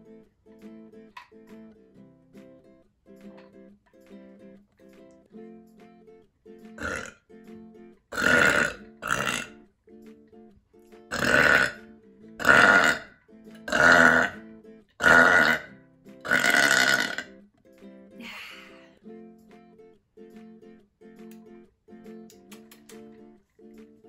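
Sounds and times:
strummed acoustic guitar music: 0.0 - 24.0
woman burping loudly: 6.8 - 7.2, 8.1 - 9.6, 11.1 - 13.1, 13.7 - 14.4, 15.0 - 17.3.

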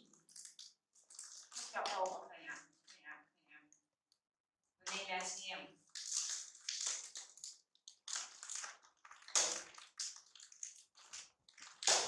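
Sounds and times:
plastic packaging crinkling: 5.9 - 12.0.

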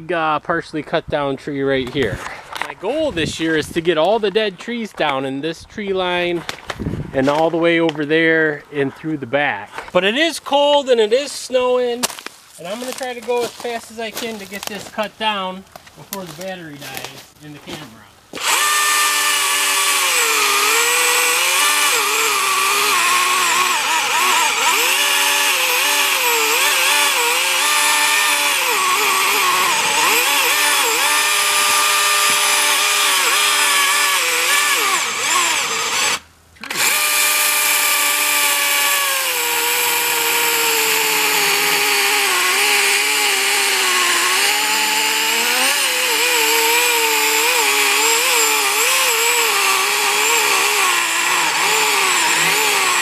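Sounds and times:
electric chainsaw cutting wood: 18.3 - 53.0.

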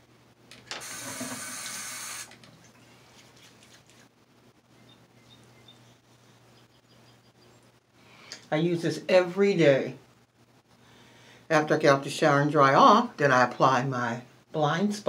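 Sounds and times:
water tap running: 0.8 - 2.4.

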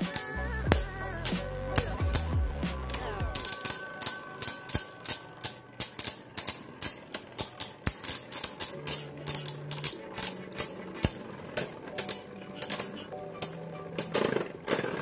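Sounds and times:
spinning tops clashing: 0.0 - 15.0.

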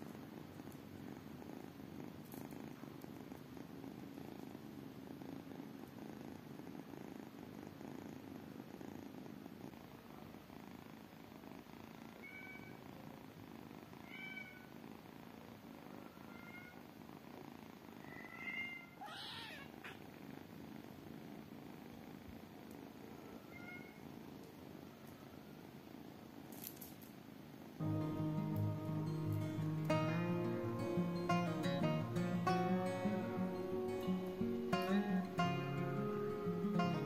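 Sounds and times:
kitten purring: 0.0 - 37.0
kitten calling: 18.1 - 20.0.

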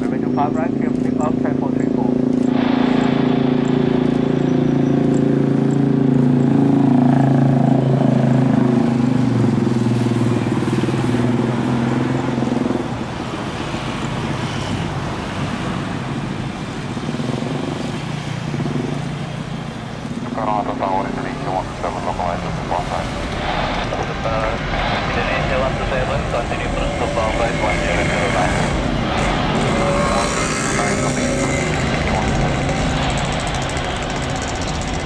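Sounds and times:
jet engines droning: 0.0 - 35.0.

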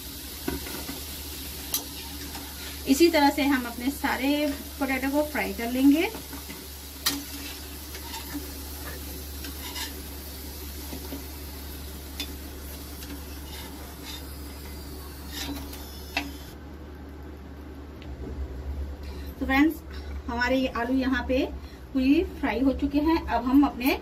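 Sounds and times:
potatoes sizzling in hot oil: 0.0 - 16.5.

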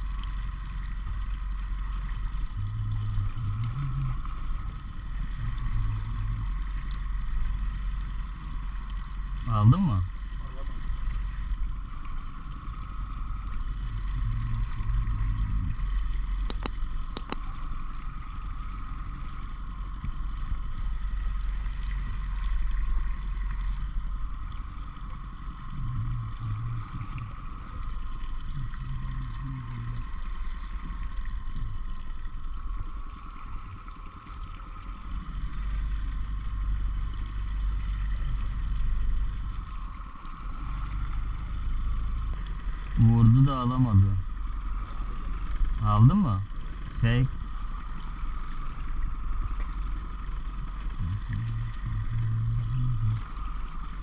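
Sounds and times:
outboard motor running: 0.0 - 17.4, 18.0 - 54.0
sharp clicks: 16.5 - 17.4
water washing along hull: 20.8 - 54.0.

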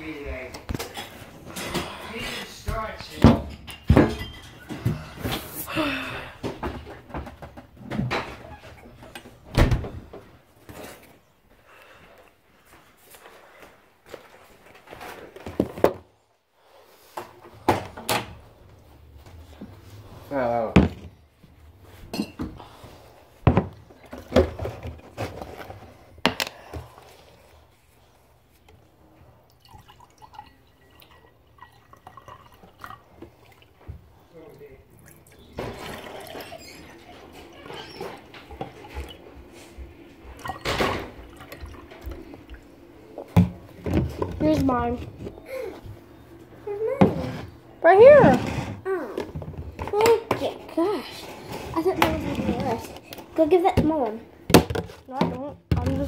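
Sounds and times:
drink pouring into a glass: 29.5 - 33.8.

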